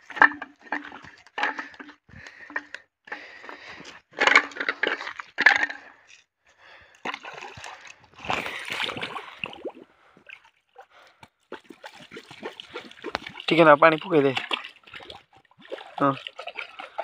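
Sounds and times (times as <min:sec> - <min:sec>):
water splashing and sloshing: 0:00.0 - 0:17.0
water drips: 0:07.0 - 0:17.0.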